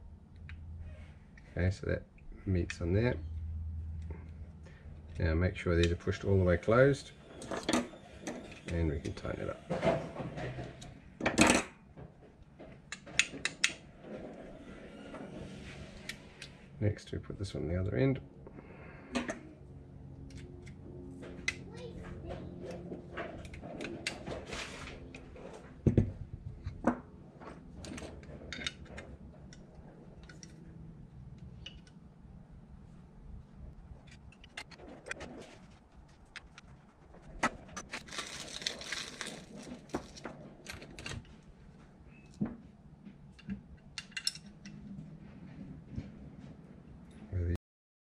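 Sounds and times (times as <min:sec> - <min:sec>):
metal parts and tools clinking: 0:43.8 - 0:44.8.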